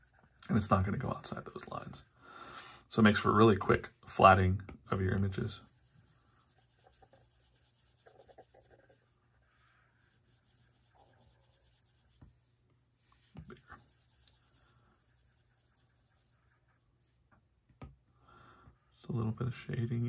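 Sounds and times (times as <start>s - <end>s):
stylus scratching on glass screen: 5.3s - 12.2s, 13.2s - 16.8s.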